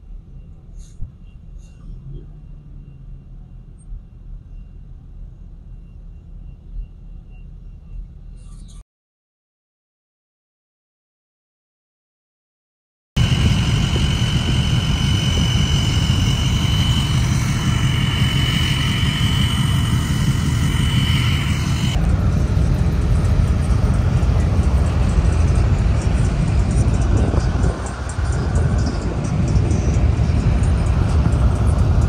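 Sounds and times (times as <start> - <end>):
high whine: 13.2 - 32.0
pickup trucks rumbling: 13.2 - 32.0.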